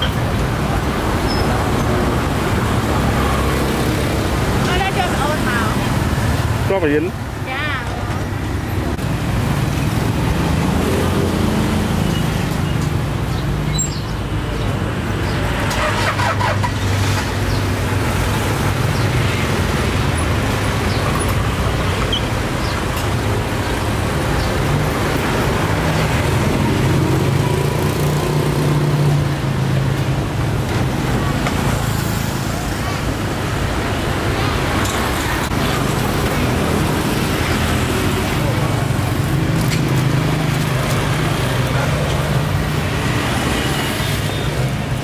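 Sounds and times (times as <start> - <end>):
vehicle engines humming past: 0.0 - 45.0.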